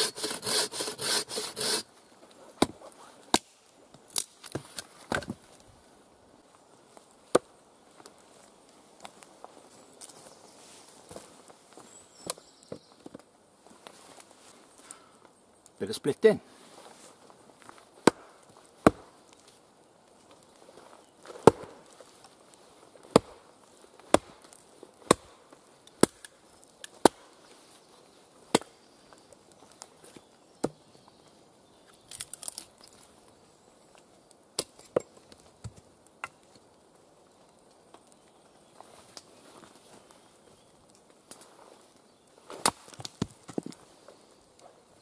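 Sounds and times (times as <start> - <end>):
axe chopping firewood: 18.0 - 19.1, 21.3 - 21.8, 23.1 - 23.4, 24.0 - 27.2, 28.5 - 28.8, 42.5 - 43.7.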